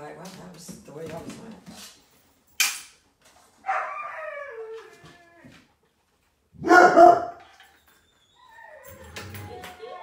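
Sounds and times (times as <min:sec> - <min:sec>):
puppy whining: 0:03.6 - 0:05.8, 0:07.6 - 0:10.0
puppy barking: 0:06.6 - 0:07.4.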